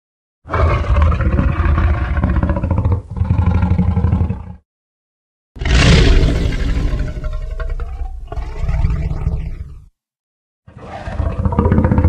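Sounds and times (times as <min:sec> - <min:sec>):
deep dinosaur roar: 0:00.5 - 0:04.6, 0:05.6 - 0:09.9, 0:10.7 - 0:12.0
loud abrupt sound: 0:05.6 - 0:07.6.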